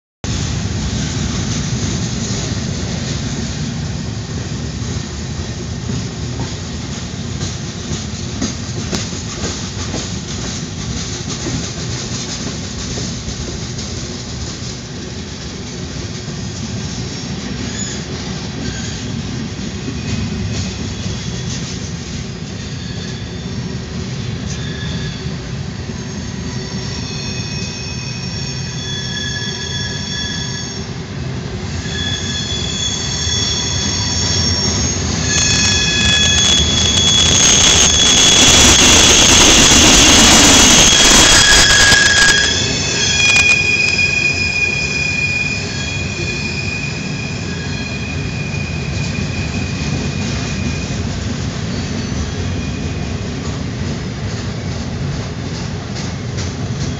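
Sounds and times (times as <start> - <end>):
freight train rumbling past: 0.2 - 56.9
train wheel squeal: 16.7 - 31.1, 31.7 - 53.6, 56.0 - 56.9.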